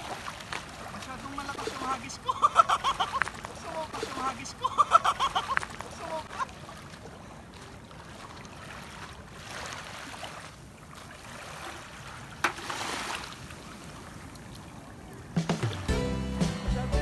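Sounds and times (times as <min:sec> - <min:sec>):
calm shallow seawater: 0:00.0 - 0:15.9
wind: 0:00.0 - 0:17.0.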